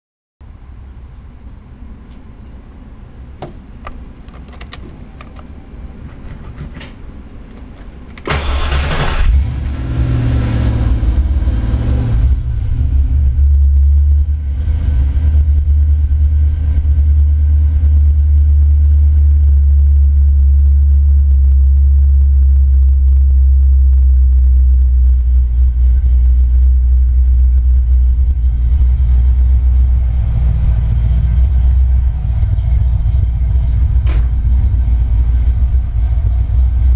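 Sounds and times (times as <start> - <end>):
deep engine idle rumble: 0.4 - 36.9
engine cranking and starting: 7.5 - 9.8.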